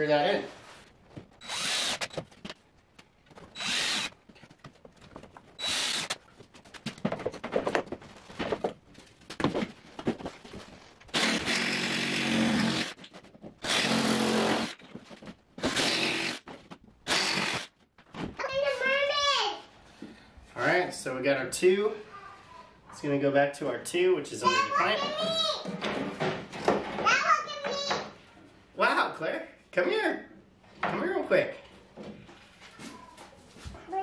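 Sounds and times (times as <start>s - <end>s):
cordless drill driving screws: 1.4s - 2.2s, 3.5s - 4.2s, 5.6s - 6.2s, 11.1s - 13.0s, 13.6s - 14.8s, 15.6s - 16.4s, 17.1s - 17.7s.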